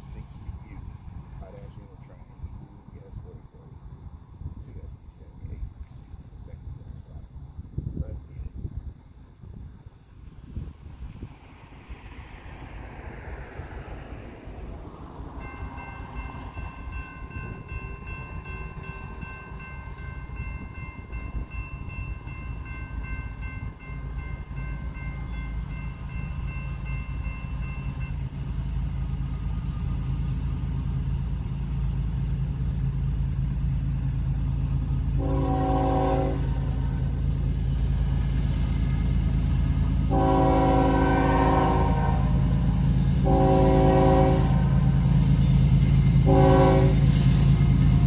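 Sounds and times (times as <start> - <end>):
diesel locomotive rumble: 0.0 - 48.0
crossing warning bell ringing: 15.4 - 30.4, 31.2 - 48.0
locomotive horn: 35.1 - 37.0, 40.1 - 45.0, 46.2 - 47.5.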